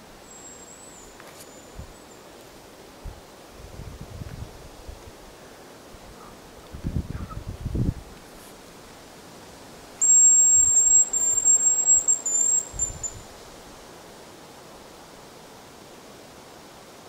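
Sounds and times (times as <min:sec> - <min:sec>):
bird decoy whistle: 0:10.0 - 0:13.2.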